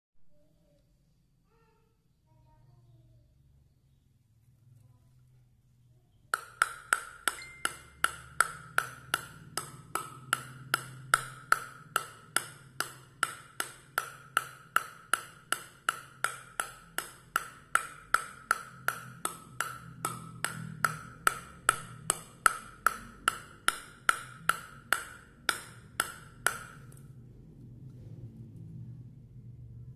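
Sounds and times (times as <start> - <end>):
ball bouncing on wooden paddle: 6.3 - 27.0.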